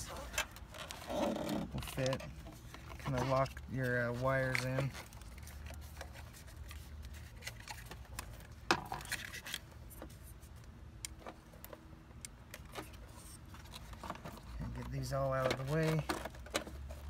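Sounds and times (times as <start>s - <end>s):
hands rubbing plastic: 0.0s - 11.3s.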